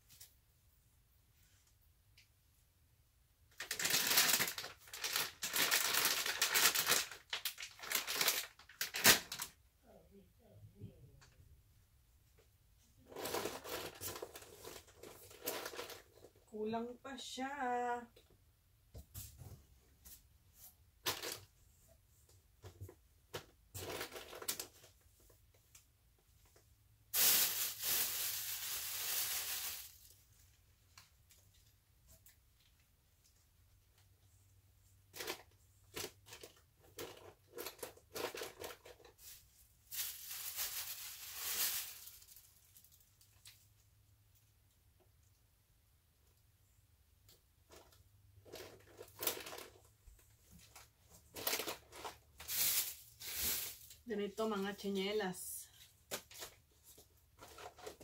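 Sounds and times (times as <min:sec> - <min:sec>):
plastic packaging crinkling: 0:03.5 - 0:09.6, 0:13.0 - 0:16.4, 0:27.2 - 0:30.2, 0:35.1 - 0:43.6, 0:47.7 - 0:49.9, 0:50.6 - 0:54.1.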